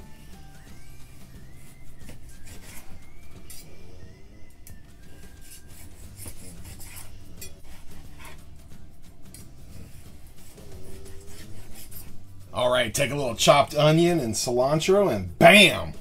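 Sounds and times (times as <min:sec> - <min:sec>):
background music: 0:00.0 - 0:16.0
knife slicing steak: 0:02.0 - 0:03.8, 0:05.2 - 0:08.6, 0:09.4 - 0:12.2.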